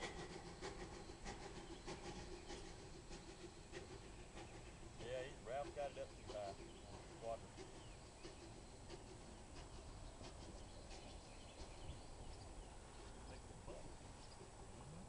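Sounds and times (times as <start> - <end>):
faint bird chirps: 6.0 - 15.0.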